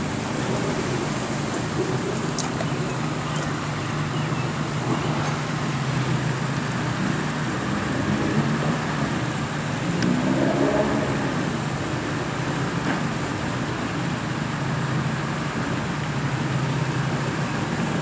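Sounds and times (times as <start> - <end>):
outdoor rush of noise: 0.0 - 18.0.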